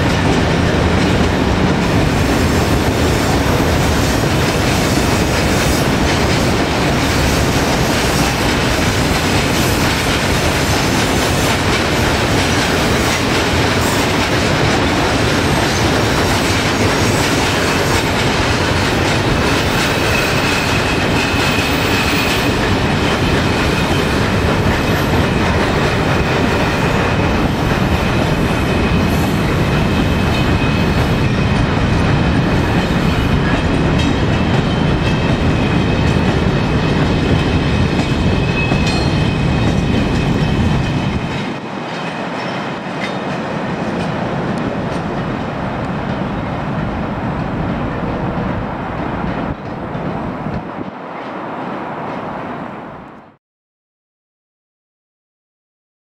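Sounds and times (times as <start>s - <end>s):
low rumble of train: 0.0s - 53.4s.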